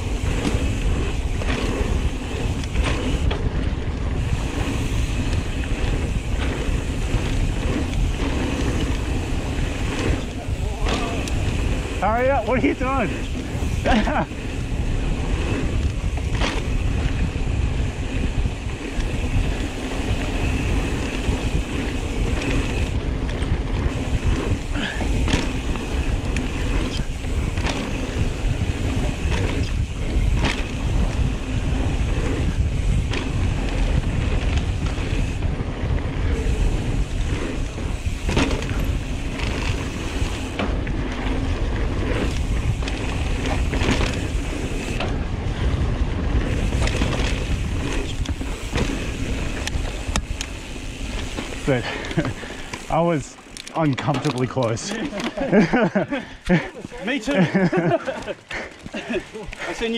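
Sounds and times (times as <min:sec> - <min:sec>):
wind buffeting microphone: 0:00.0 - 0:53.6
bike rattling over bumps: 0:00.0 - 0:59.9
bike tyres rolling on dirt: 0:00.0 - 0:59.9.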